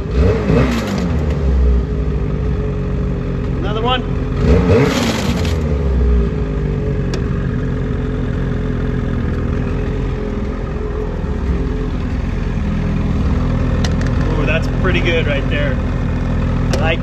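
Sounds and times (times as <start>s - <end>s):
snowmobile engine running: 3.6s - 17.0s.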